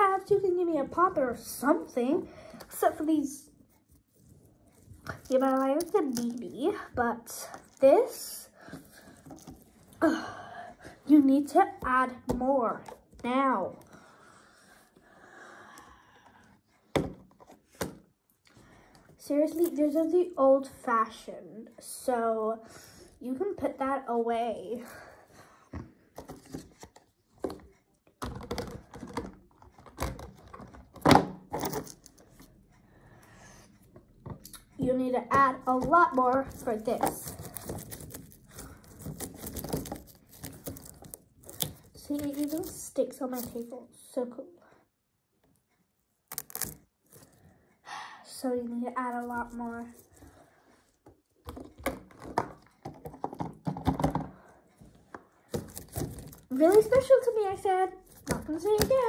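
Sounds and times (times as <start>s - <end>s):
fidget toys clicking and crackling: 5.0s - 8.2s, 35.3s - 43.7s, 46.2s - 47.4s, 55.5s - 59.0s.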